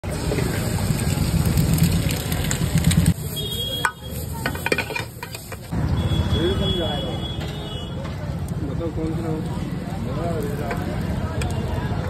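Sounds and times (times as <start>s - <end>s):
eggs sizzling in hot oil: 0.0s - 5.8s, 8.3s - 12.0s.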